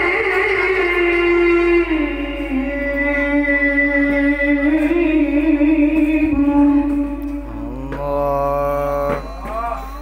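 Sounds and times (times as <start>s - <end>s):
man reciting through microphone: 7.3s - 10.0s.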